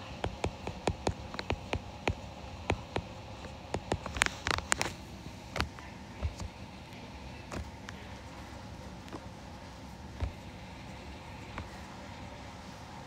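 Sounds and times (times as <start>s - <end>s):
stylus tapping on glass screen: 0.2s - 3.1s, 3.7s - 4.1s.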